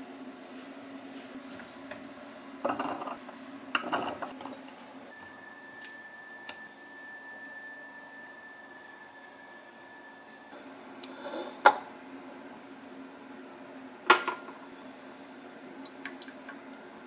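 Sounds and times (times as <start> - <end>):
kitchenware clattering: 2.6 - 4.6, 14.1 - 14.5
faint high whine: 3.8 - 11.2, 11.9 - 15.8.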